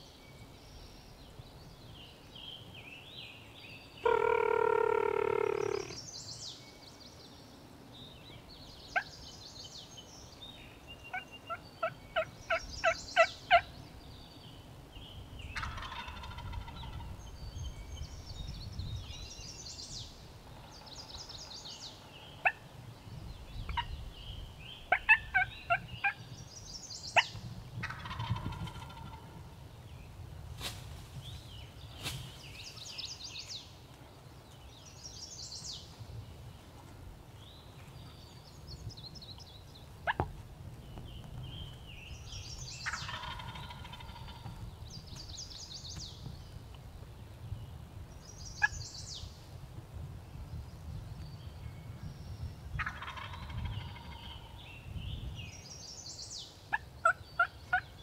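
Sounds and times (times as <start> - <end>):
turkey gobbling: 4.0 - 6.0, 15.6 - 17.0, 24.9 - 26.2, 27.2 - 29.3, 42.8 - 44.5, 52.8 - 54.2, 56.7 - 57.8
turkey clucking: 4.1 - 6.0, 15.6 - 17.0, 42.8 - 44.5, 52.8 - 54.1.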